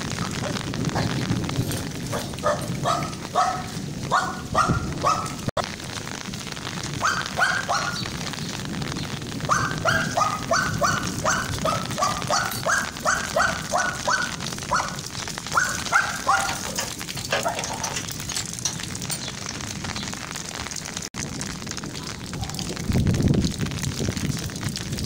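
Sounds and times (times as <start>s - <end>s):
falling rain: 0.0s - 25.0s
young dog yapping: 2.1s - 5.5s, 7.0s - 8.0s, 9.5s - 18.1s.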